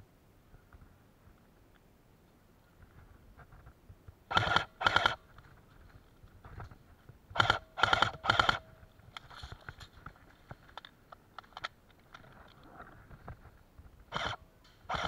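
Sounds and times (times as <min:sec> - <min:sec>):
airsoft rifle bursts: 0:04.3 - 0:05.2, 0:07.4 - 0:08.8, 0:14.1 - 0:15.0
rustling through undergrowth: 0:08.8 - 0:14.1.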